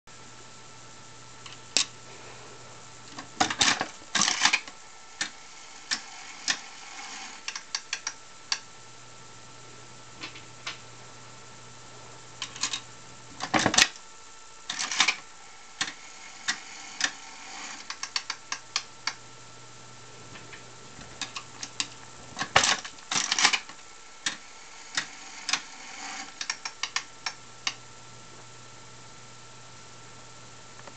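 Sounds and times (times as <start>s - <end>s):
spinning reels ticking: 3.1s - 8.7s, 14.7s - 19.2s, 20.5s - 27.8s.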